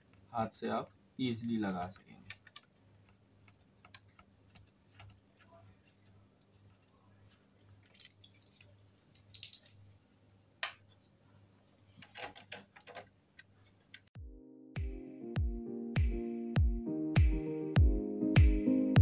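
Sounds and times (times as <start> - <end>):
screws clicking and clinking: 7.6 - 9.8.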